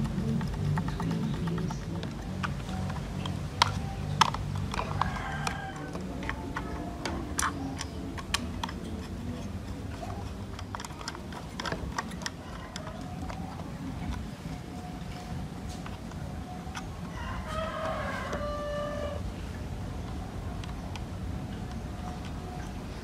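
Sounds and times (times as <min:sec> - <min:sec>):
plastic clicks and taps: 0:00.0 - 0:14.3.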